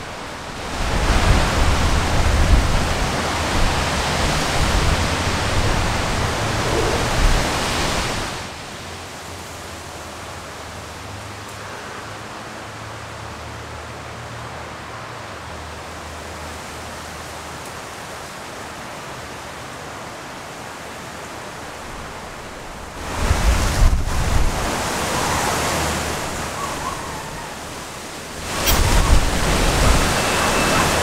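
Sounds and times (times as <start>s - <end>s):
wind buffeting microphone: 0.0s - 8.6s, 21.8s - 31.0s
wind hissing: 0.0s - 8.6s, 22.2s - 31.0s
trees rustling: 0.0s - 31.0s.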